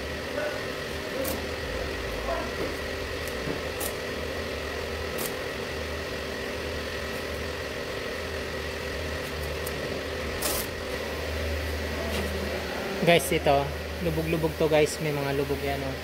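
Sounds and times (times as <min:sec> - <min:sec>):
machine hum: 0:00.0 - 0:16.0
masking tape ripping off roll: 0:03.3 - 0:04.0, 0:05.1 - 0:05.4, 0:10.4 - 0:10.8.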